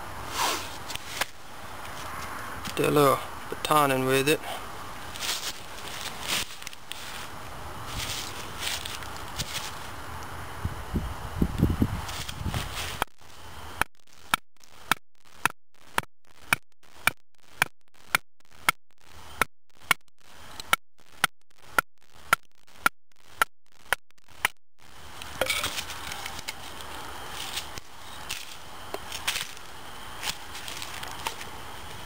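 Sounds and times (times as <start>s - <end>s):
wood crackling and rustling: 0.6s - 2.8s, 4.9s - 10.4s, 11.5s - 14.9s, 23.7s - 32.0s.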